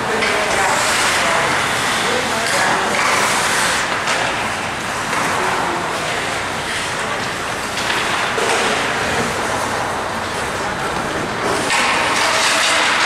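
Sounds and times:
skates scraping ice: 0.1s - 13.0s
hockey sticks and puck knocking: 11.5s - 13.0s.

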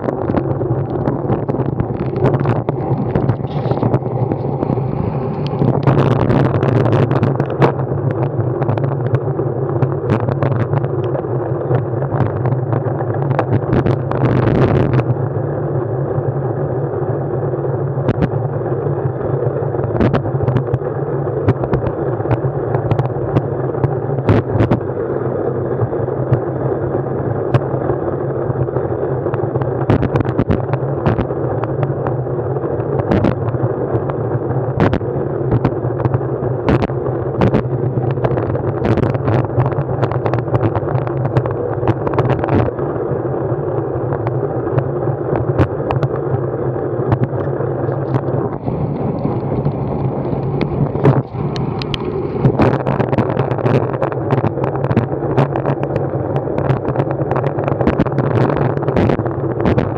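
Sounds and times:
low drone of a moving ride: 0.0s - 59.9s
noisy rush: 0.0s - 59.9s
sharp clicks and knocks: 47.1s - 59.9s.

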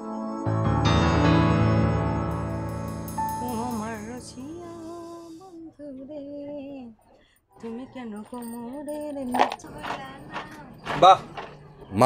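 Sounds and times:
woman singing unaccompanied: 3.2s - 7.0s, 7.6s - 10.8s.

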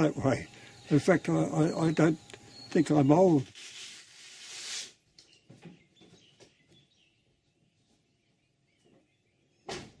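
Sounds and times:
faint bird chirps: 0.3s - 3.4s.

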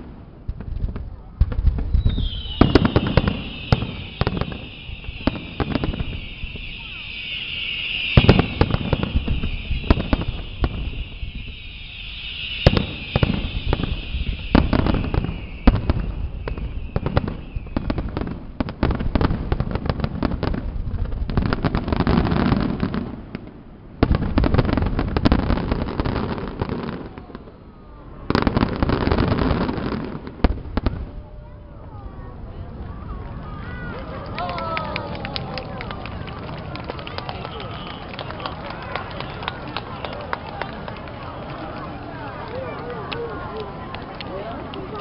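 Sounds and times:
fireworks bursting: 0.0s - 45.0s.

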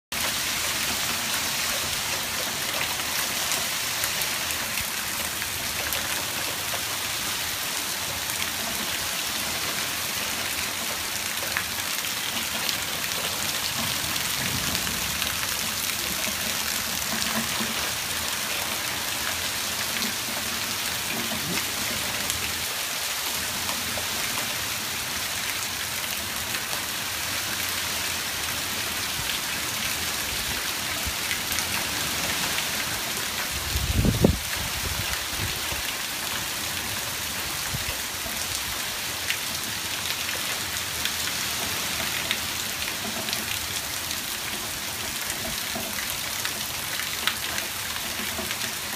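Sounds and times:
rain hissing: 0.2s - 24.0s.

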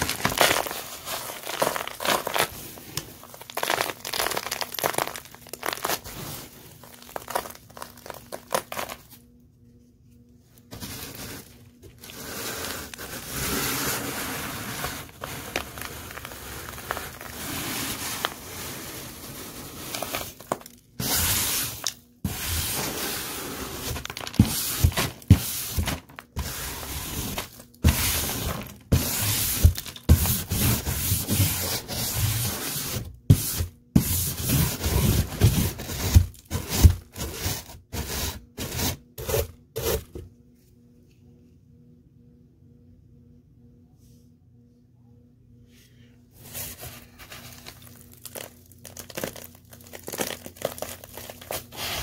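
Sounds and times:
dry debris scraping and crunching: 0.0s - 9.1s, 10.8s - 26.2s, 46.5s - 52.0s.

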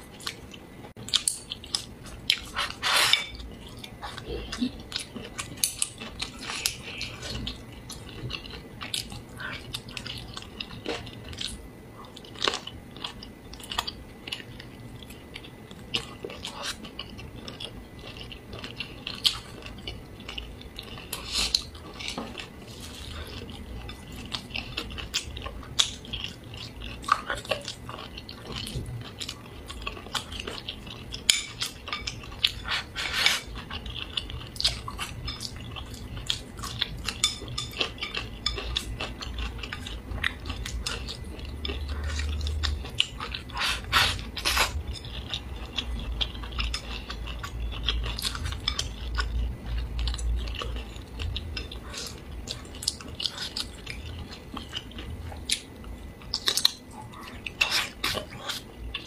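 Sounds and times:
close-up chewing: 0.1s - 59.0s.

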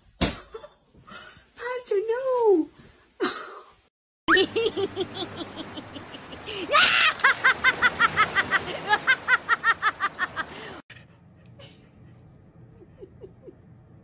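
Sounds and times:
person laughing: 4.3s - 10.6s, 12.6s - 13.8s.

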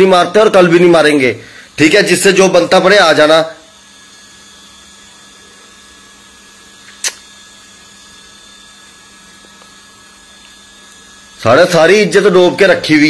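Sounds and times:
faint steady hum: 0.0s - 13.0s
short sharp click: 6.9s - 7.3s.

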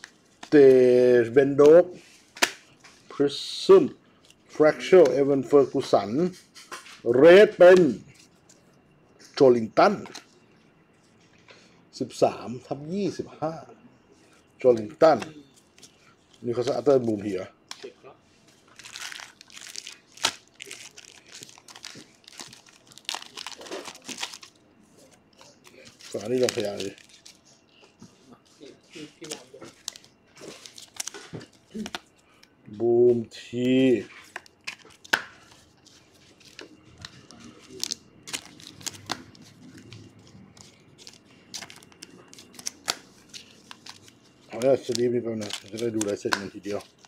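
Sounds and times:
foil wrapper crinkling: 18.5s - 27.7s, 28.5s - 32.4s, 33.6s - 47.0s.

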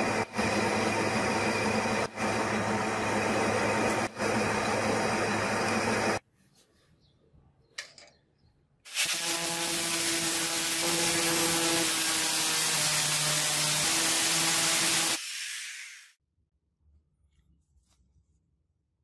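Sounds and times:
workshop tool motor hissing and humming: 8.9s - 16.1s.

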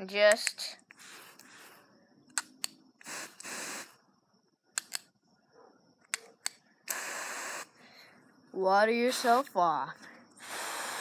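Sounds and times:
water spray bursts: 3.0s - 3.9s
hose nozzle trigger clicks: 4.8s - 5.1s, 6.1s - 7.1s.

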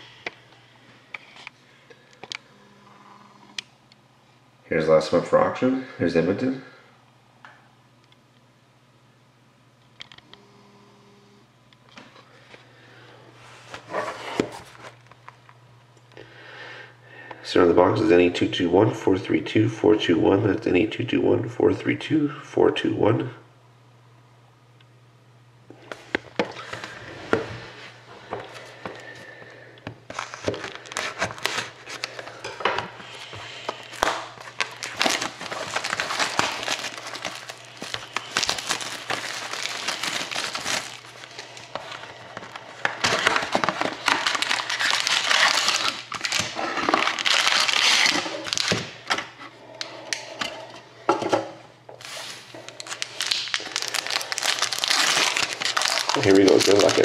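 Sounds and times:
card pack wrappers crinkling: 30.1s - 48.9s, 52.0s - 57.0s.

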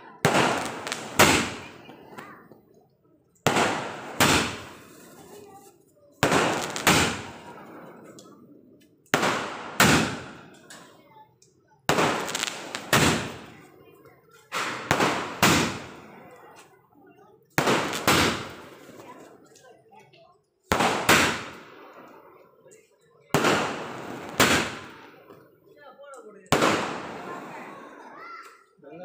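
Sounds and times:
firework crackle: 0.2s - 2.5s, 3.4s - 8.3s, 9.0s - 11.0s, 11.8s - 16.8s, 17.5s - 19.6s, 20.7s - 22.2s, 23.3s - 25.4s, 26.5s - 28.0s
firework shells launching and bursting: 0.2s - 2.5s, 3.4s - 5.4s, 6.2s - 8.4s, 9.0s - 10.9s, 11.8s - 13.7s, 14.4s - 16.4s, 17.5s - 19.1s, 20.7s - 22.2s, 23.3s - 25.4s, 26.5s - 27.7s.

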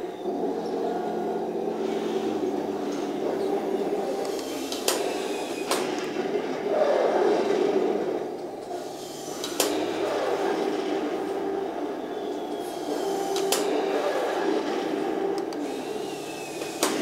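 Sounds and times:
toy tank engine drone: 12.4s - 17.0s.

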